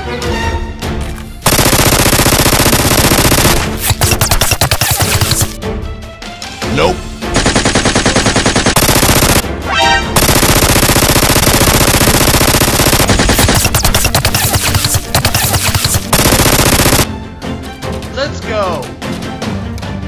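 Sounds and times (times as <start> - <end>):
machine-gun fire sound effect: 1.4 - 5.6, 7.3 - 9.4, 10.2 - 17.1.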